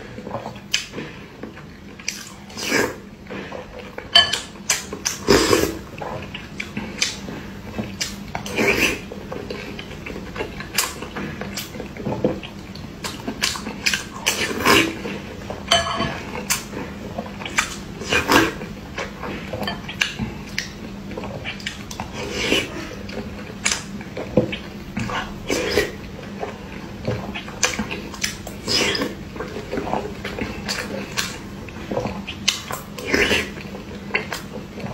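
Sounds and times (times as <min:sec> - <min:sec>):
chewing and mouth sounds: 0:00.0 - 0:34.9.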